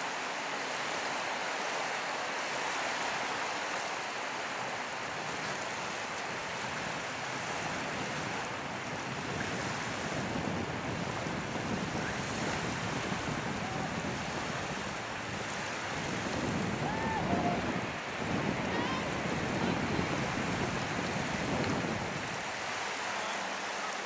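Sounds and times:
small waves washing onto shore: 0.0s - 24.0s
wind buffeting microphone: 4.6s - 23.8s.

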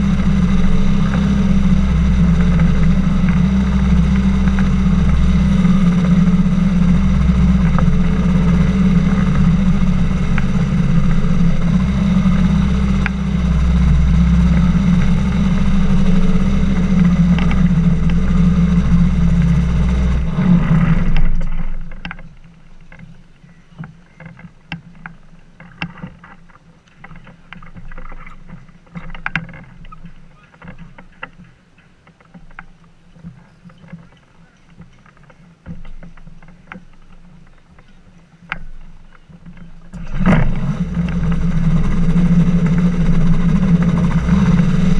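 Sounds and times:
water sounds: 0.0s - 31.0s
boat engine and propeller running: 0.0s - 44.9s.

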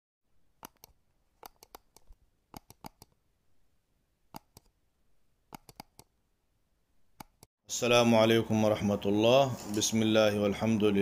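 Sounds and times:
sharp clicks: 0.6s - 3.2s, 4.3s - 4.7s, 5.5s - 6.1s, 7.2s - 7.5s.

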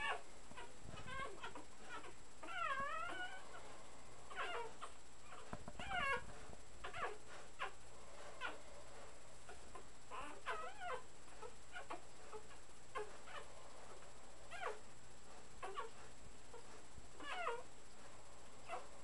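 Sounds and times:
puppies squeaking and whimpering: 0.0s - 3.7s, 4.3s - 7.8s, 8.4s - 8.6s, 9.5s - 13.5s, 14.5s - 14.8s, 15.6s - 17.6s, 18.6s - 18.8s
puppy whining: 0.0s - 19.0s.

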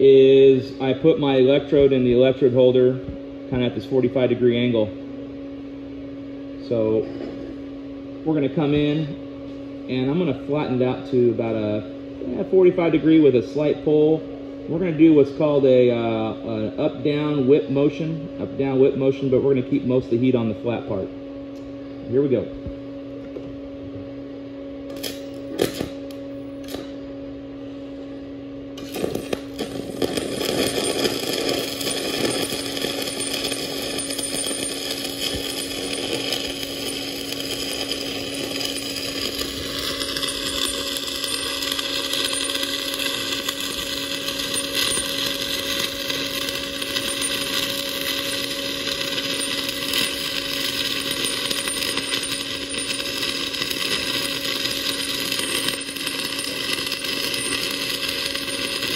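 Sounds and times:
steady hum: 0.0s - 58.9s
welding arc crackling: 24.9s - 26.9s, 28.8s - 58.9s.

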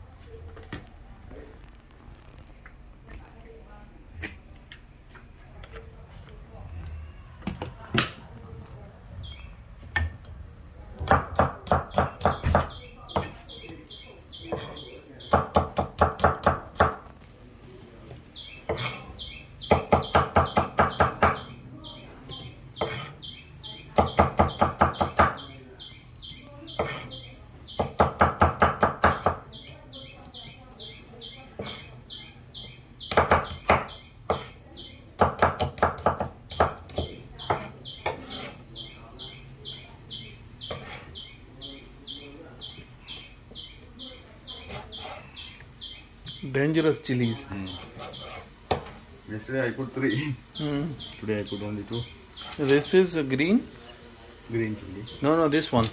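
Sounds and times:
bird chirping: 9.2s - 9.6s, 11.4s - 16.9s, 18.3s - 48.5s, 49.9s - 55.9s
knife chopping on wooden block: 11.0s - 13.4s, 18.7s - 19.0s, 22.8s - 23.2s, 26.8s - 27.1s, 33.1s - 34.6s, 35.2s - 38.6s, 40.7s - 41.1s
knife chop on wooden board: 35.2s - 38.5s.

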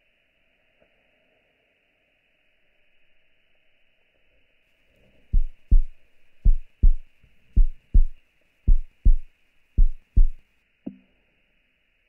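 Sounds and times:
bass drum double thumps: 5.4s - 10.4s.

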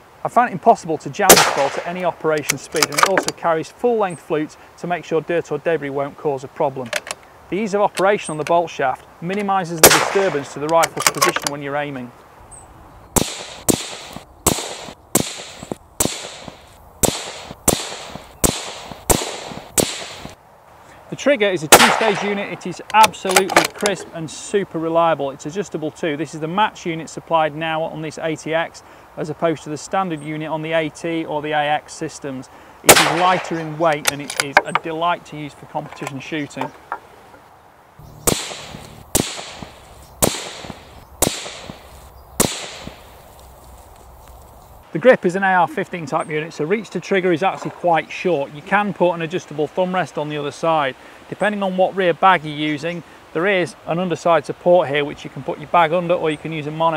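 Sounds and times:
suppressed rifle shots: 1.3s - 2.0s, 9.8s - 11.4s, 13.2s - 20.4s, 21.7s - 22.6s, 32.9s - 33.8s, 38.1s - 43.2s.

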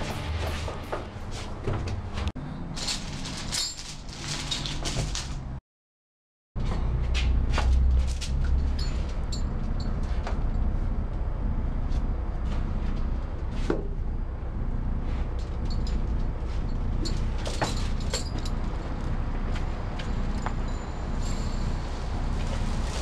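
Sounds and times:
heavy metal chain clinking: 2.7s - 5.4s, 8.1s - 10.6s, 15.4s - 19.2s, 19.9s - 22.2s
low background rumble: 7.0s - 23.0s.

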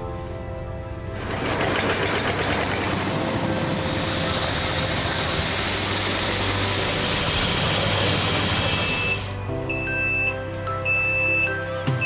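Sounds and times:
coffee machine humming: 1.1s - 9.4s
beans pouring with hiss: 5.1s - 8.8s.

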